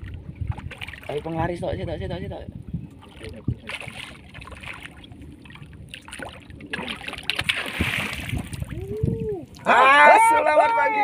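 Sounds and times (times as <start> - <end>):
fish thrashing and splashing: 3.7 - 8.8.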